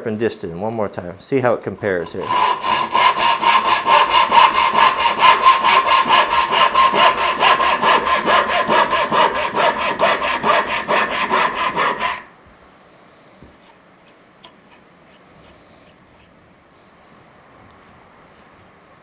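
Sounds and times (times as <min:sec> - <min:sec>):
handsaw cutting wood: 0:02.0 - 0:12.3.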